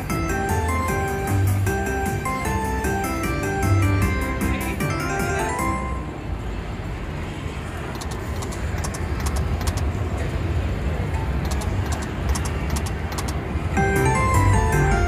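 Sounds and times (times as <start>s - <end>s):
sharp high clicks: 7.9s - 9.9s, 11.4s - 13.4s.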